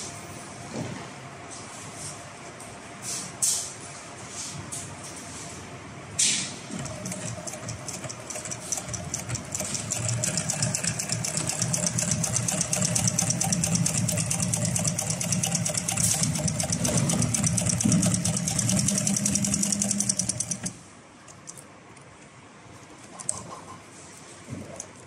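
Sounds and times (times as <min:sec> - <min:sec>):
industrial sewing machine running: 0:06.7 - 0:20.8.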